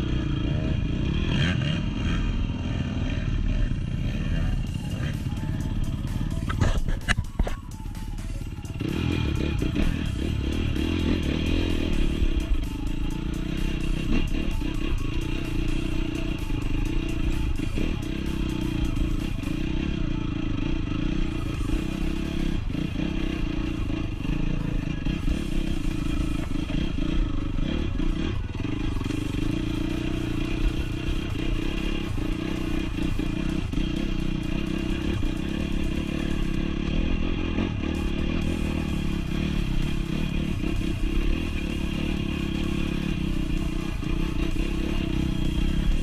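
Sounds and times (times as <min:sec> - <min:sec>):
dirt bike engine running: 0:00.0 - 0:46.0.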